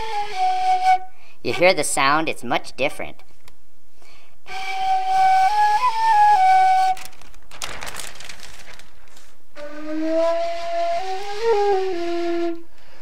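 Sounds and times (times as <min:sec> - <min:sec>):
flute playing held notes: 0:00.0 - 0:01.1, 0:04.5 - 0:07.0, 0:09.6 - 0:12.7
plastic bag rustling: 0:06.5 - 0:09.5.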